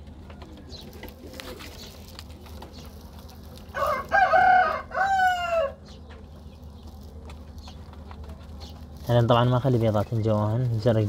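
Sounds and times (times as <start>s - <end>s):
rooster crowing: 3.7s - 5.8s.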